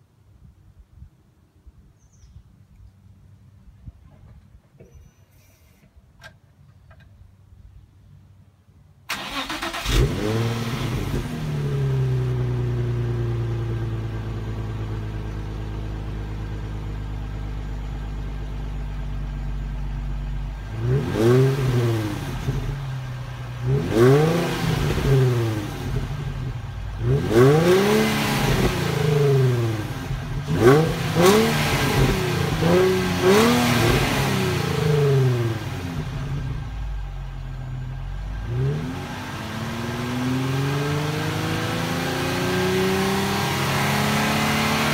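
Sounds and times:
car engine idling and revving: 9.1 - 44.9.

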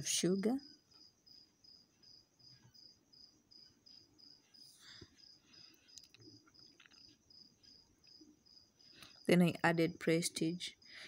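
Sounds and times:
faint cricket chirping: 0.0 - 11.0.

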